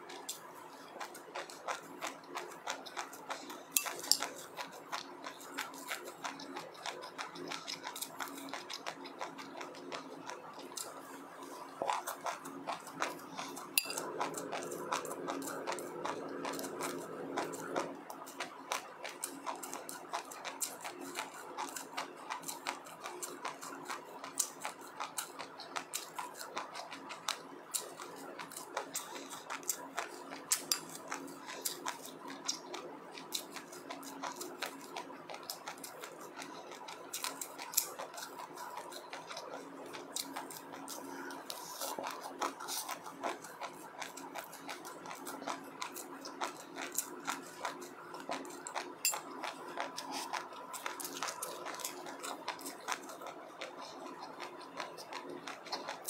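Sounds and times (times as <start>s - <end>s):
crisp chewing crunches: 0.0s - 56.0s
faint steady hum: 0.0s - 56.0s.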